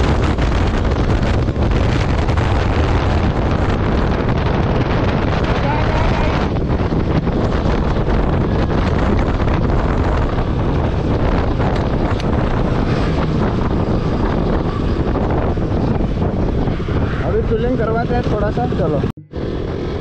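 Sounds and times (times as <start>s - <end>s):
motorcycle engine: 0.0s - 20.0s
wind buffeting microphone: 0.0s - 20.0s.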